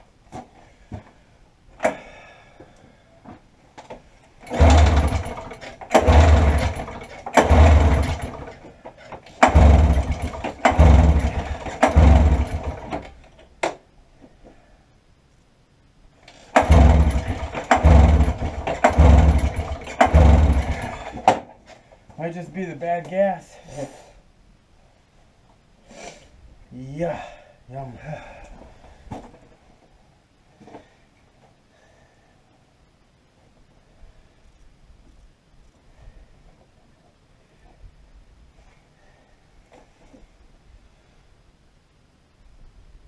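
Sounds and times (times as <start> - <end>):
snowmobile engine cranking: 4.4 - 13.4, 16.3 - 21.5.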